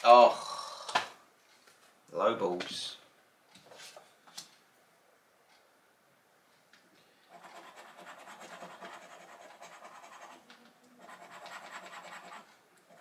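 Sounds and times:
scratchcard scratching: 0:07.3 - 0:13.0.

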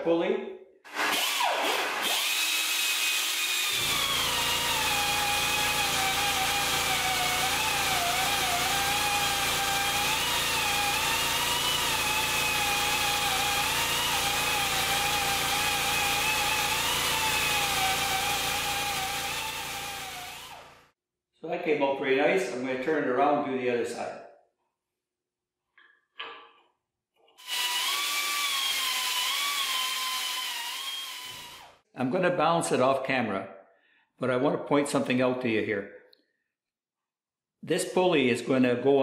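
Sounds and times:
die grinder whining on metal: 0:00.9 - 0:20.8, 0:27.4 - 0:31.7.

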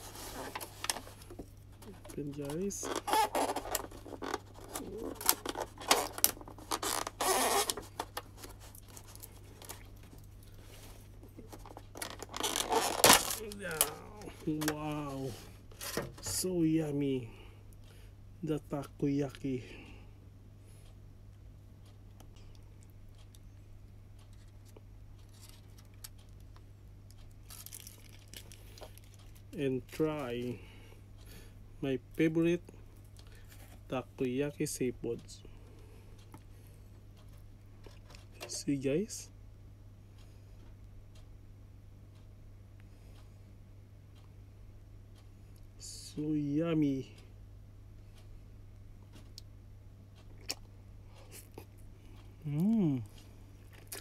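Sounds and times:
steady low hum: 0:00.0 - 0:54.0
plastic container crinkling: 0:01.8 - 0:09.9, 0:11.4 - 0:13.9, 0:27.4 - 0:29.4.

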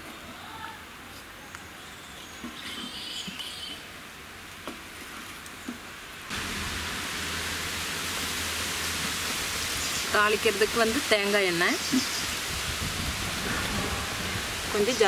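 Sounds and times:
steady hiss: 0:06.3 - 0:15.0.

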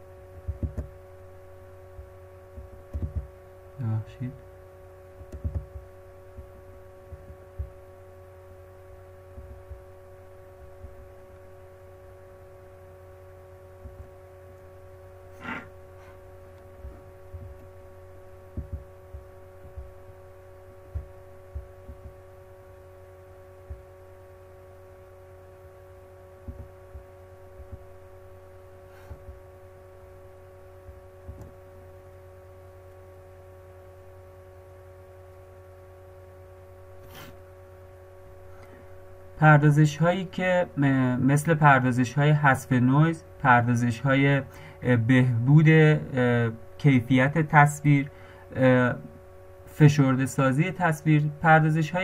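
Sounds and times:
electrical hum: 0:00.0 - 0:52.0
soft low thumps: 0:00.4 - 0:01.0, 0:02.0 - 0:03.4, 0:05.2 - 0:07.9, 0:09.3 - 0:10.0, 0:10.6 - 0:11.3, 0:13.8 - 0:14.2, 0:16.7 - 0:17.8, 0:18.4 - 0:20.2, 0:20.8 - 0:22.3, 0:23.6 - 0:23.9, 0:26.4 - 0:28.0, 0:29.1 - 0:29.5.

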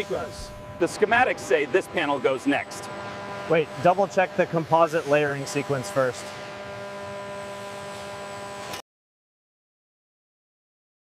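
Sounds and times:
droning hum of held tones: 0:00.0 - 0:08.8.

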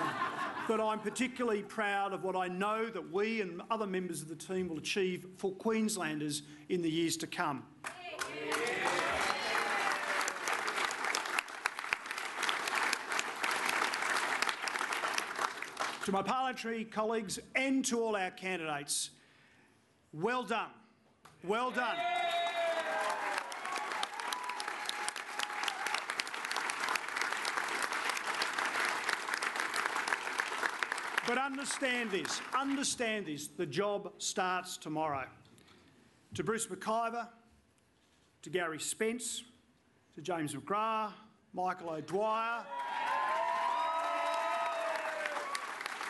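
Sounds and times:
crowd applauding: 0:07.9 - 0:16.1, 0:21.8 - 0:32.8, 0:42.7 - 0:46.0
cheering shouts: 0:08.0 - 0:10.5, 0:21.7 - 0:26.1, 0:42.7 - 0:45.8.

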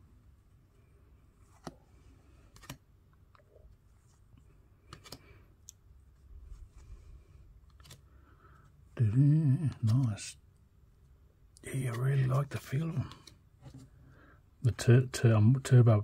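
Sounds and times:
cards rustling: 0:01.4 - 0:10.3, 0:11.7 - 0:14.0.

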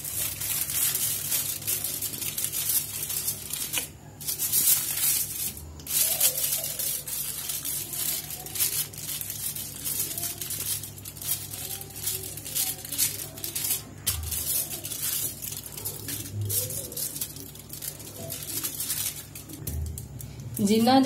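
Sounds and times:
aluminium foil crinkling: 0:00.0 - 0:21.0
steady low hum: 0:00.0 - 0:21.0.

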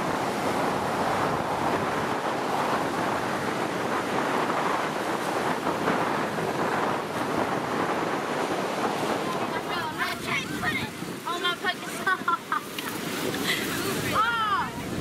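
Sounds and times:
ocean surf breaking: 0:00.0 - 0:15.0
wind on microphone: 0:00.0 - 0:15.0.

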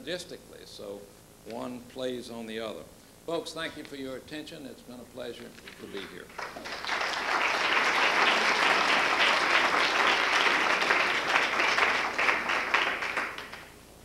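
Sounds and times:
audience applauding: 0:06.3 - 0:13.8.

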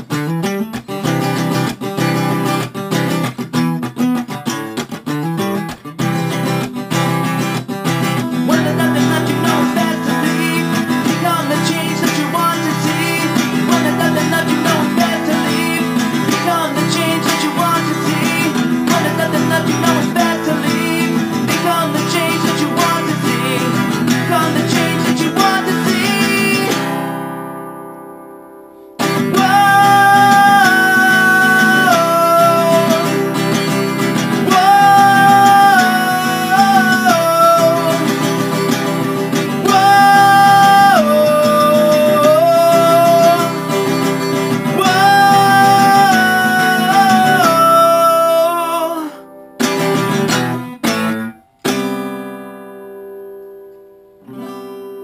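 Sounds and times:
acoustic guitar playing: 0:00.0 - 0:55.0.

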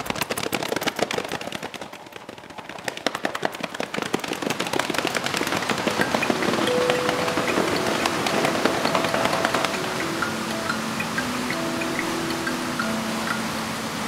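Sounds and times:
hands slapping thighs and clapping: 0:00.0 - 0:10.4.

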